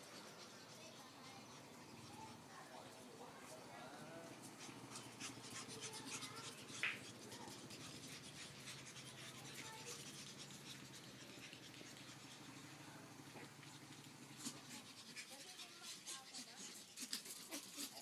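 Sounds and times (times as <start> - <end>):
puppy claws scratching on concrete: 4.2 - 18.0.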